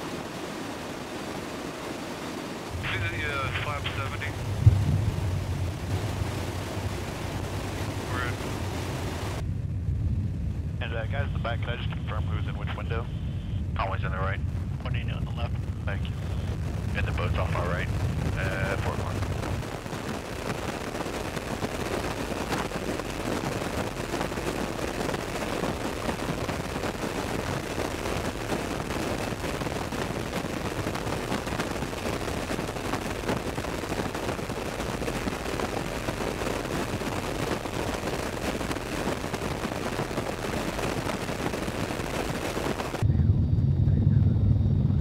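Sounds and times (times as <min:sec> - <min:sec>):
aircraft engine noise: 0:00.0 - 0:45.0
rush of wind: 0:00.0 - 0:45.0
rapid buffeting rattle: 0:02.8 - 0:09.4.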